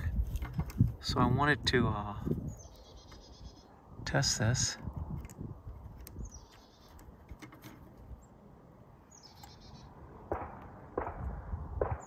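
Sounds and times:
faint outdoor rumble: 0.0s - 12.0s
high-pitched bird chirps: 2.4s - 3.7s, 9.1s - 9.9s.

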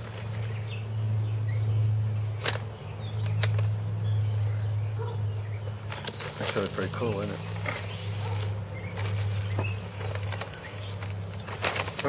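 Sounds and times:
handling pottery and plastic bag: 5.9s - 12.0s.

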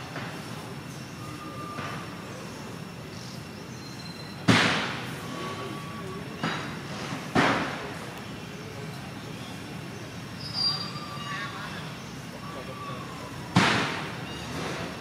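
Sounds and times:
steady background hiss: 0.0s - 15.0s
faint thin whistles: 1.1s - 2.1s, 10.4s - 11.4s
loud bangs: 4.4s - 5.2s, 13.5s - 15.0s.

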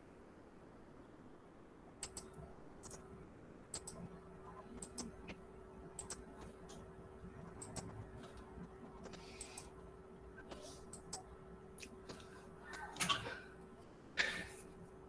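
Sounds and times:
faint steady hum: 0.0s - 15.0s
computer mouse clicks: 2.0s - 3.0s, 3.7s - 4.1s, 4.7s - 6.9s, 7.5s - 9.8s, 10.6s - 13.1s.

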